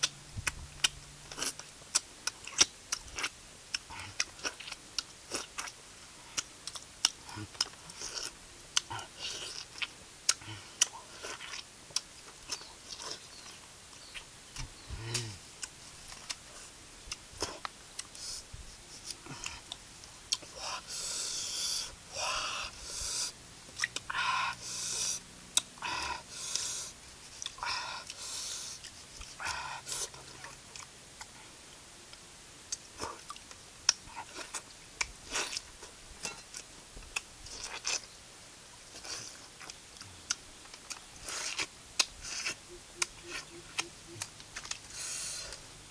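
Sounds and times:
crunching bites and chewing: 0.4 - 5.8, 6.4 - 14.2, 32.7 - 38.1, 38.9 - 45.6
noisy mouth sounds: 14.9 - 15.4, 41.2 - 45.6.

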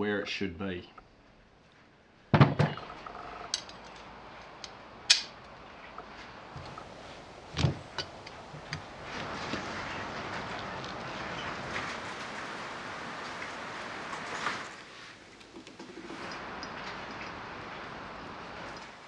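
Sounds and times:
metal parts knocking and clinking: 3.4 - 4.1.

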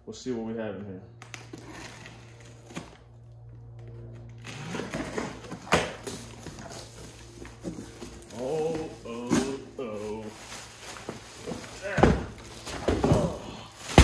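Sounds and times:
cardboard rustling and scraping: 4.2 - 14.0.

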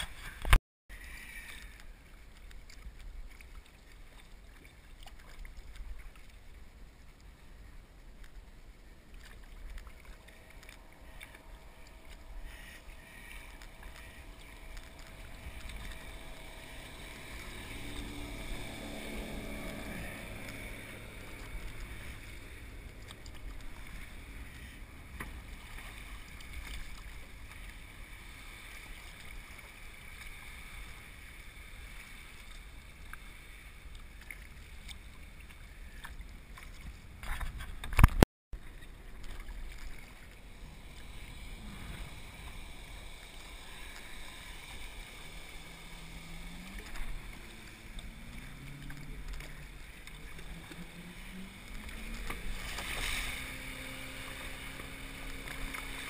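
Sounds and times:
kayak paddle splashing: 0.0 - 56.0
motorboat engine passing: 0.0 - 56.0
wind on microphone: 39.6 - 56.0.

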